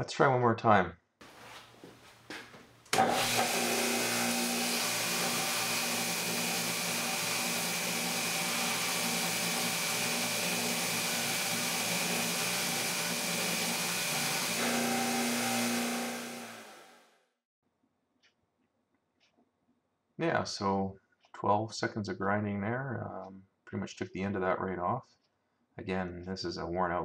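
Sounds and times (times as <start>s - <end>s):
belt grinder grinding steel: 3.0s - 17.0s
motor hum: 3.0s - 17.0s.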